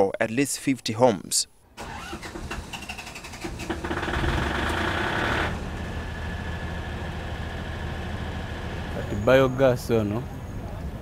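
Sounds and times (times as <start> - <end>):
generator engine starting up: 1.8 - 9.1.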